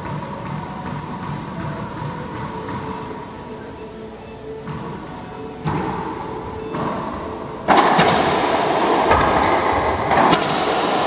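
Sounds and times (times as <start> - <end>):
loud steady rushing noise: 0.0 - 11.0
racquetball cracks echoing: 5.6 - 11.0.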